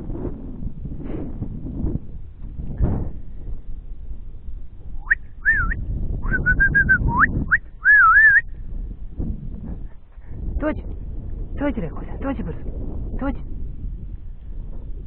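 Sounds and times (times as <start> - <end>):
low rumble: 0.0 - 15.0
person whistling: 5.0 - 8.5.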